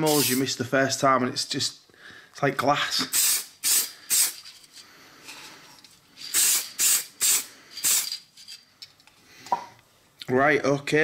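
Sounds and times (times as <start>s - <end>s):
spray can hissing bursts: 0.0s - 0.4s, 3.1s - 4.5s, 6.2s - 8.2s.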